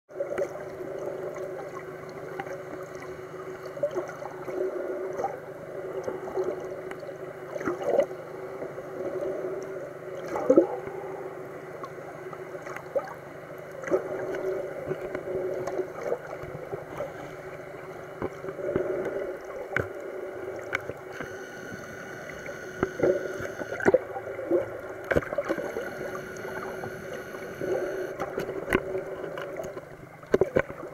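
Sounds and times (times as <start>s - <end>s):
underwater gurgling and sloshing: 0.1s - 30.9s
steady low hum: 10.8s - 30.9s
clicks and pops: 20.8s - 24.0s, 25.0s - 28.9s.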